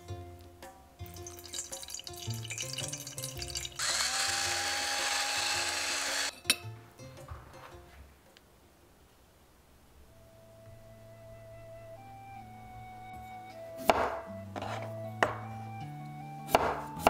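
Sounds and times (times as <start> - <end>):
soft background music: 0.0 - 8.2, 10.0 - 17.0
electric grinder whirring: 3.8 - 6.3.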